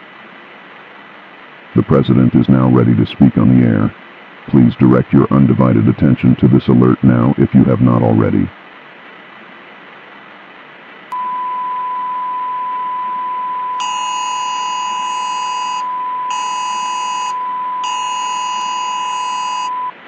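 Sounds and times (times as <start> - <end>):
faint steady hiss: 0.0 - 14.5.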